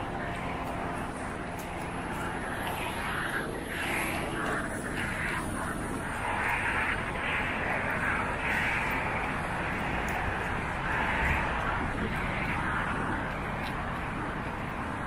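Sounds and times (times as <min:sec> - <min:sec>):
busy street traffic: 0:00.0 - 0:15.0.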